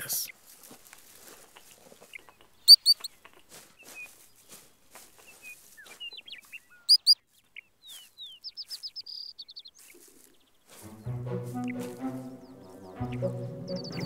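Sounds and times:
faint scattered chirps and ticks: 0.0 - 10.8
ground squirrel alarm chirps: 2.2 - 4.1, 6.4 - 7.2.

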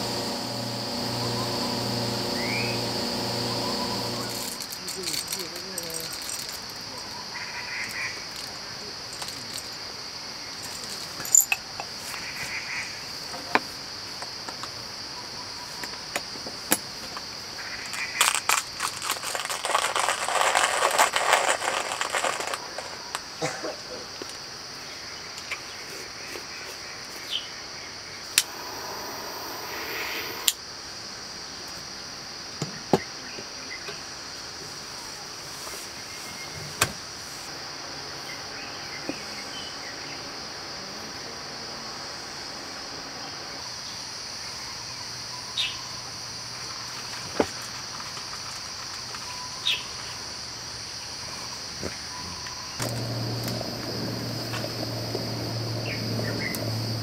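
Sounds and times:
high-pitched insect chorus: 0.0 - 57.0
burst of noise: 28.3 - 30.6.

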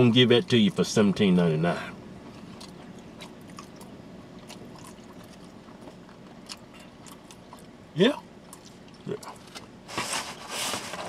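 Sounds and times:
low steady background hiss: 0.0 - 4.8.

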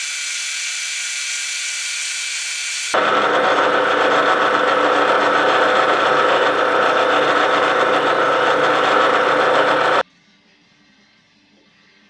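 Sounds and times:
drill boring into metal: 0.1 - 10.0
lathe motor and gears whining: 3.0 - 10.0.

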